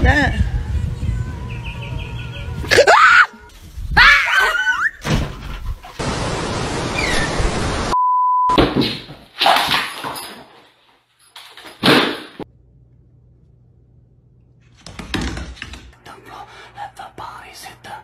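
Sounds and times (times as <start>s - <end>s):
censor bleep: 8.0s - 8.6s.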